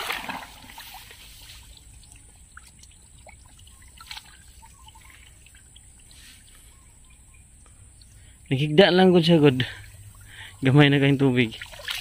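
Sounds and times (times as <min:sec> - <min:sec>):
small water splashes: 0:00.0 - 0:06.7, 0:09.6 - 0:12.0
muddy water trickling and dripping: 0:00.0 - 0:12.0.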